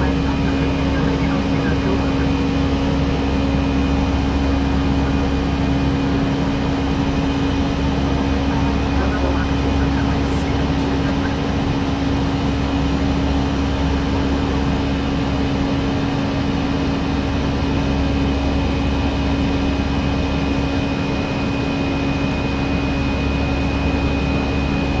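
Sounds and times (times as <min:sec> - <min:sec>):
steady hum: 0:00.0 - 0:14.8
cockpit airflow and engine noise: 0:00.0 - 0:25.0.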